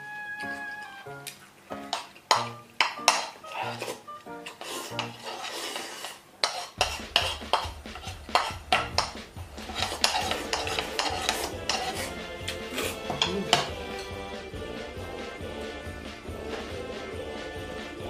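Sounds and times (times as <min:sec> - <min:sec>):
background music: 0:00.0 - 0:05.2, 0:06.8 - 0:18.0
chopsticks clicking on wooden bowl: 0:01.2 - 0:03.4, 0:06.8 - 0:11.9.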